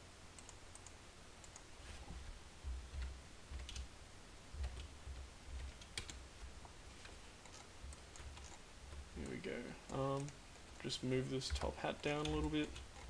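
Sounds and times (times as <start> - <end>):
dull low thumps: 2.6 - 3.6.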